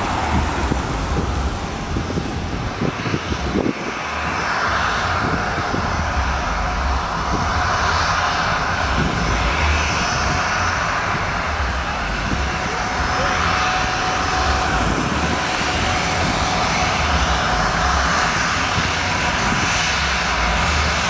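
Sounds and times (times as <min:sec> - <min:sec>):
car passing: 0:00.0 - 0:04.3, 0:08.9 - 0:21.0
high engine whine: 0:00.0 - 0:21.0
jet engines roaring: 0:00.0 - 0:21.0.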